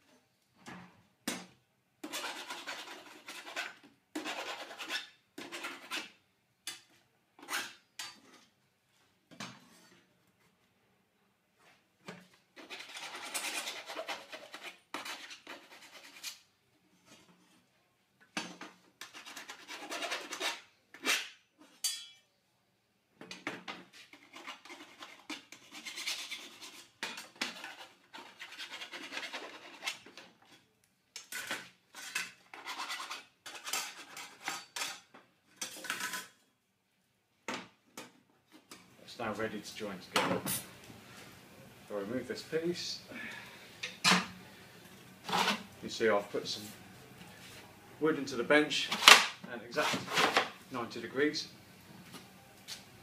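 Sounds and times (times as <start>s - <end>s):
file rasping on metal: 2.0s - 6.2s, 12.6s - 16.4s, 19.0s - 20.7s, 24.0s - 30.1s.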